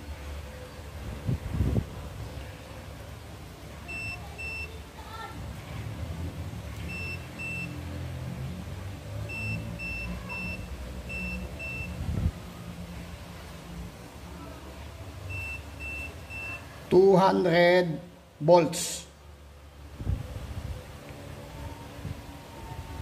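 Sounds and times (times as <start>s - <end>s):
short electronic beeps: 3.9s - 4.7s, 6.9s - 7.8s, 9.3s - 12.0s, 15.3s - 16.7s.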